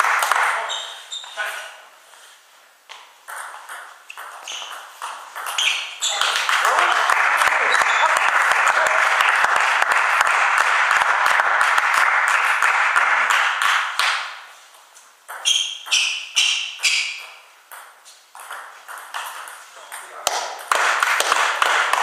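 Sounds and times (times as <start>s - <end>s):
spectators applauding: 0.0s - 0.5s, 6.2s - 14.2s, 20.7s - 22.0s
table tennis ball bouncing: 2.9s - 6.9s, 15.2s - 22.0s.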